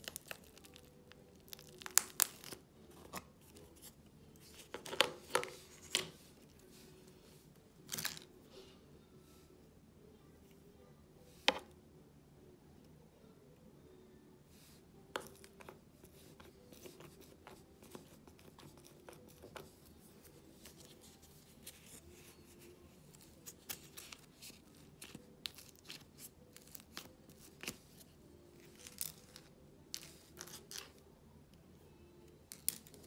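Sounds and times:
clay clicking and popping: 0.0s - 2.6s.

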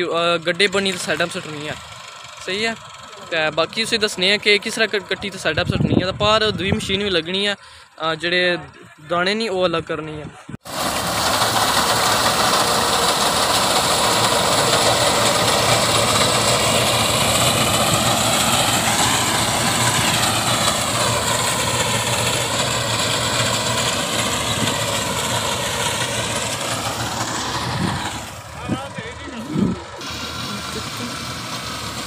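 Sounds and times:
tractor engine under load: 0.0s - 9.7s, 10.6s - 32.0s.

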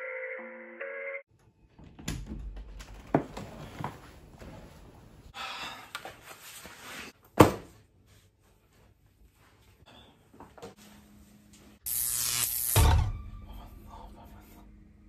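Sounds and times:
door clicking and knocking: 1.7s - 3.4s
backpack thud on wooden floor: 7.4s - 7.7s.

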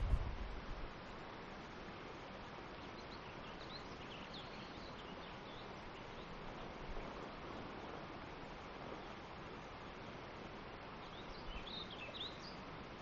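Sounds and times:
wind and rustling: 0.0s - 13.0s.

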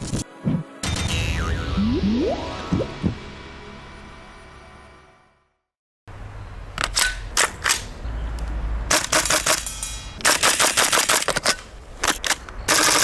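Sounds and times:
airsoft rifle bursts: 12.0s - 13.0s.

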